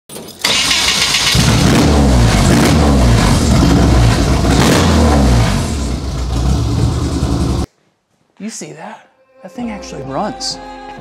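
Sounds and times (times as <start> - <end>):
car engine revving: 0.5 - 7.7.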